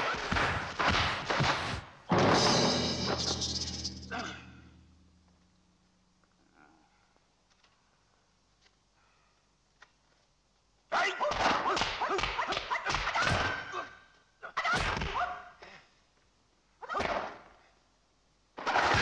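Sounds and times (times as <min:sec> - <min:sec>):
thuds and whips of blows: 0:00.0 - 0:02.6
man yelling high-pitched: 0:10.9 - 0:11.4.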